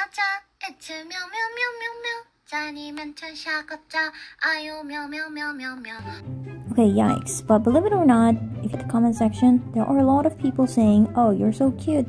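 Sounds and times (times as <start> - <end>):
woman singing in childlike voice: 0.0 - 6.2.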